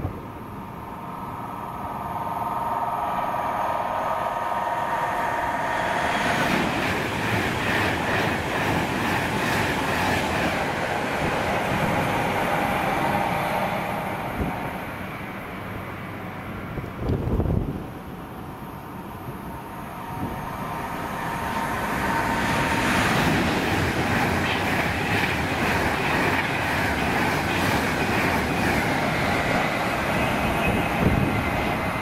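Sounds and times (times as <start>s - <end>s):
train wheels rattling on rails: 0.0s - 32.0s
train whine: 0.0s - 32.0s.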